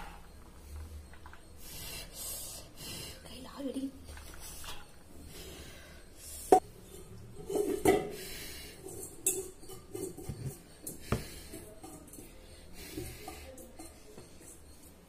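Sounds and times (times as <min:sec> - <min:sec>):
metal utensils clinking on pots: 0:06.6 - 0:15.0.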